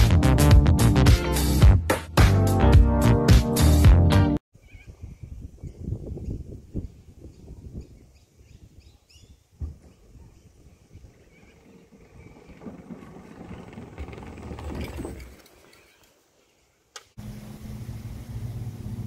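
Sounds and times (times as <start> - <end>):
scooter wheels rolling: 9.9 - 16.4.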